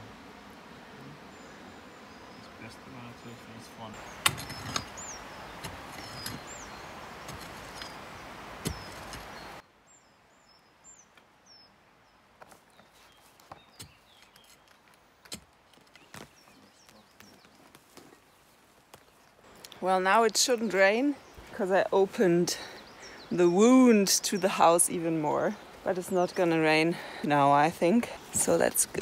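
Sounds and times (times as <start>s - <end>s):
steady outdoor hiss: 0.0s - 29.0s
small birds chirping: 0.1s - 29.0s
hand tool knocking in soil: 8.6s - 9.3s.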